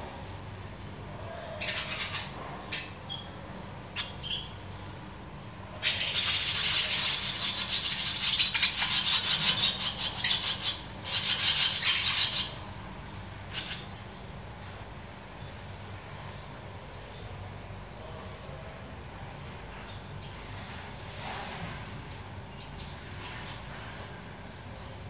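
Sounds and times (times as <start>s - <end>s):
nestlings twittering: 1.5s - 3.3s, 4.0s - 14.6s.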